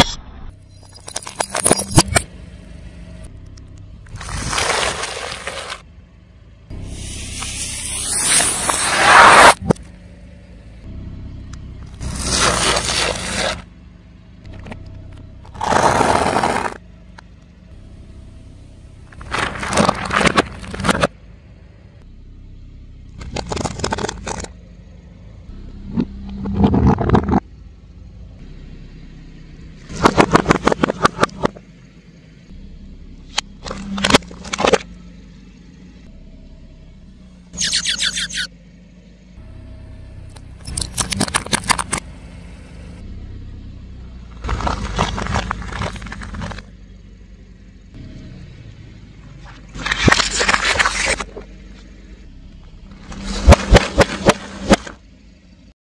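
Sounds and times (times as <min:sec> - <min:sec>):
car rolling: 0:00.5 - 0:55.7
tyre crushing objects: 0:15.5 - 0:16.8, 0:19.2 - 0:21.1.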